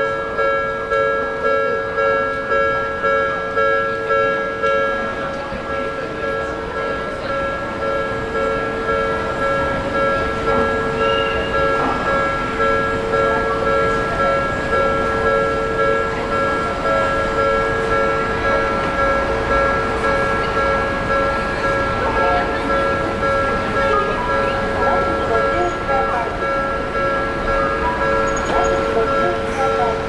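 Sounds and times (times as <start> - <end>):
level crossing alarm two-tone: 7.0 - 30.0.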